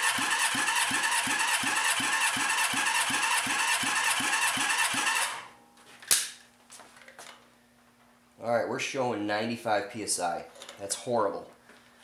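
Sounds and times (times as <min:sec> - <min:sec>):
engine starter whirring: 0:00.0 - 0:05.5
sharp click: 0:06.1 - 0:06.4.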